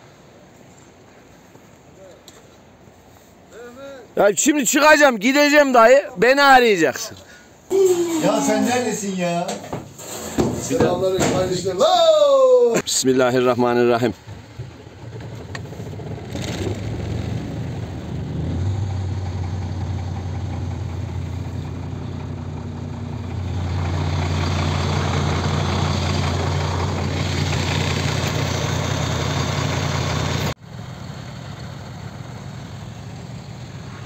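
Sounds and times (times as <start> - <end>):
diesel engine idling: 14.2 - 34.0.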